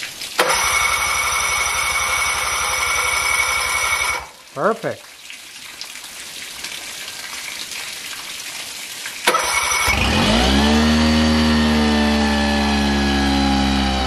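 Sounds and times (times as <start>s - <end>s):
outboard motor cranking: 0.4s - 4.3s, 9.3s - 14.0s
outboard motor idling: 0.4s - 4.3s, 9.3s - 14.0s.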